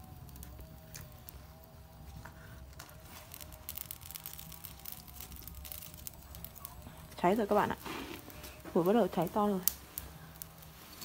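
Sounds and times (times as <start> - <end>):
wood fire crackling: 0.0 - 11.0.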